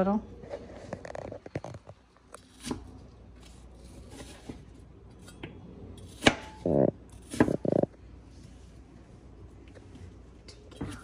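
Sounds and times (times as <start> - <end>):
knife cutting apple on wooden board: 2.4 - 7.8.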